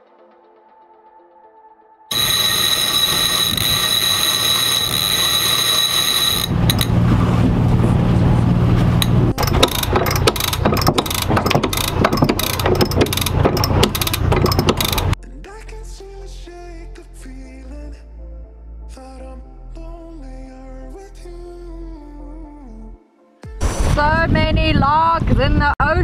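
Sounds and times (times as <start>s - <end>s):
winch clicking rapidly: 2.1s - 7.0s, 9.0s - 15.2s
line whirring: 2.1s - 15.2s.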